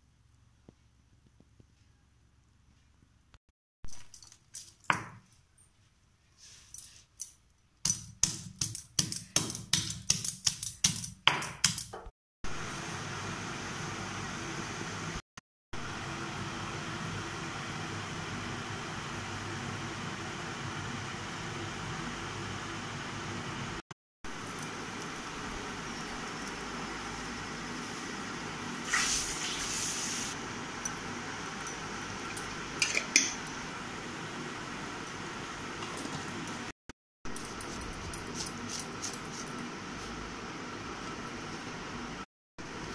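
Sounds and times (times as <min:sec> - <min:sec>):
stone pestle pounding in mortar: 0:07.9 - 0:12.1
clinks against steel bowl: 0:32.8 - 0:33.5.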